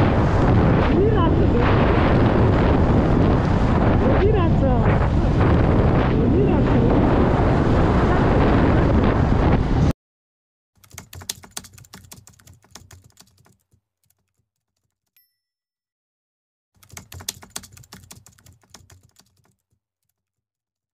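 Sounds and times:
wind noise on microphone: 0:00.0 - 0:09.9
keyboard typing clicks: 0:10.8 - 0:15.2, 0:16.8 - 0:20.4.

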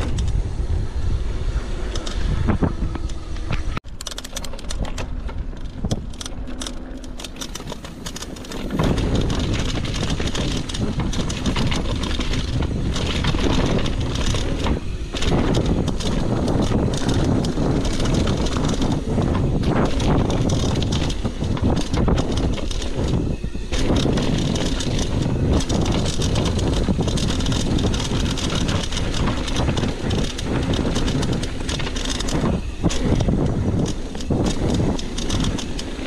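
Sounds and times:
bike tyres rumbling on dirt: 0:00.0 - 0:36.0
wind noise on microphone: 0:00.0 - 0:36.0
bike frame and chain rattling: 0:01.8 - 0:36.0.

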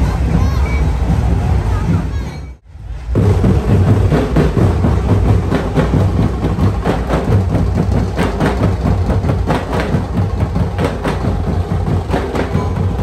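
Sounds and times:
drummers beating drums: 0:03.1 - 0:13.0.

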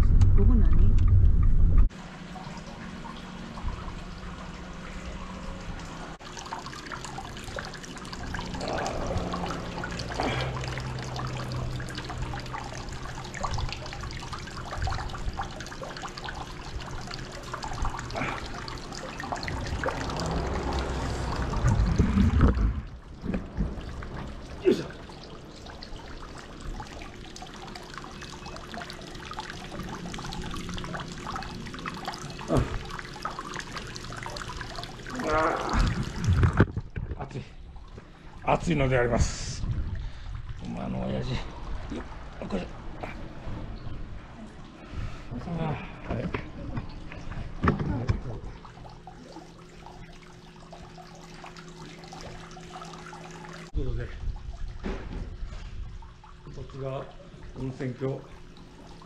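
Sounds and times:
low rumble: 0:00.0 - 0:01.9, 0:19.3 - 0:24.6
water pouring into wooden tub: 0:02.0 - 0:42.6, 0:47.2 - 0:59.0.

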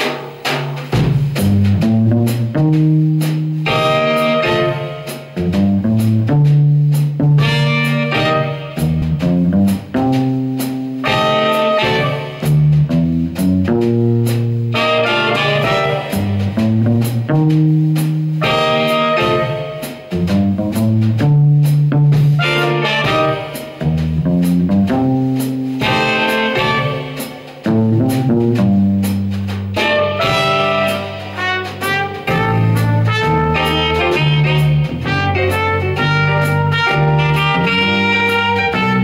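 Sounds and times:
drum kit cymbal strokes: 0:00.0 - 0:39.0
piano: 0:00.0 - 0:39.0
electric bass guitar: 0:00.9 - 0:39.0
trumpet: 0:01.4 - 0:13.0, 0:13.7 - 0:39.0
saxophone: 0:03.6 - 0:05.9, 0:07.4 - 0:10.4, 0:11.0 - 0:12.7, 0:14.7 - 0:17.4, 0:18.4 - 0:20.3, 0:22.4 - 0:24.0, 0:25.8 - 0:28.7, 0:29.8 - 0:39.0.

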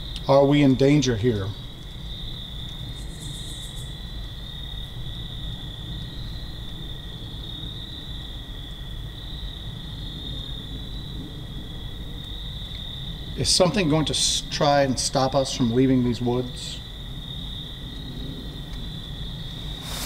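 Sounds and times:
low background hiss: 0:00.0 - 0:20.0
night insects trilling: 0:00.0 - 0:20.0
insect pulsing buzz: 0:01.5 - 0:14.2, 0:16.8 - 0:20.0.

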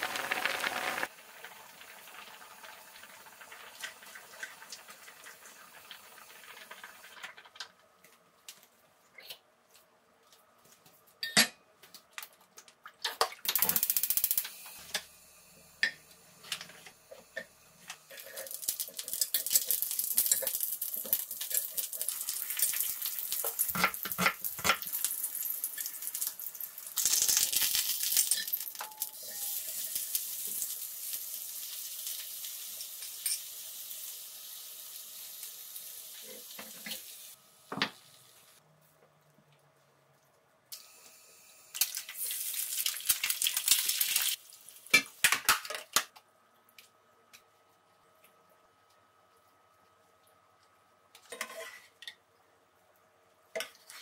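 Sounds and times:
food sizzling in grill pan: 0:18.2 - 0:38.6.

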